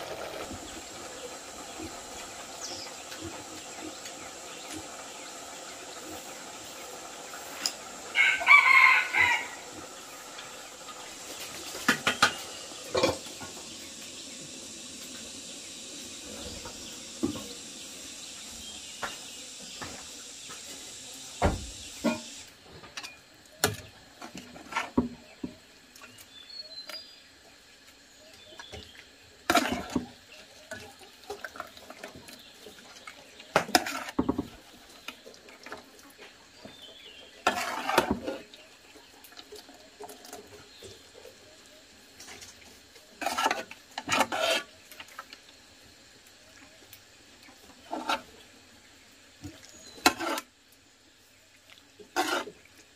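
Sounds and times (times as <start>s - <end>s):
rooster crowing: 8.1s - 9.7s.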